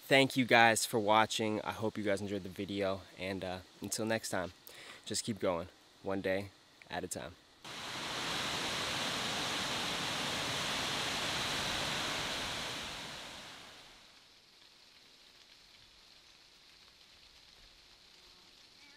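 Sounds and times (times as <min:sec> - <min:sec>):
faint hiss: 0:00.0 - 0:18.9
waterfall rushing: 0:07.7 - 0:14.0.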